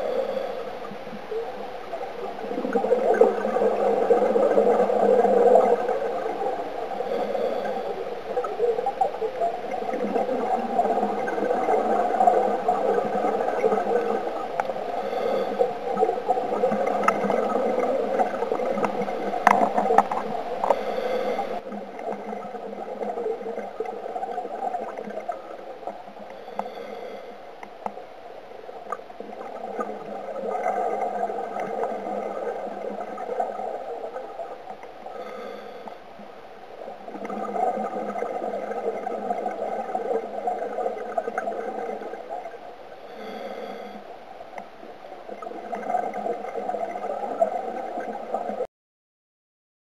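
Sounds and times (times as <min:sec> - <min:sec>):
scuba regulator breathing: 0:00.0 - 0:01.0, 0:05.0 - 0:21.8, 0:26.1 - 0:28.0, 0:35.0 - 0:36.3, 0:43.0 - 0:44.2
exhaust bubbles gurgling: 0:00.0 - 0:27.0, 0:28.8 - 0:35.9, 0:36.8 - 0:48.7.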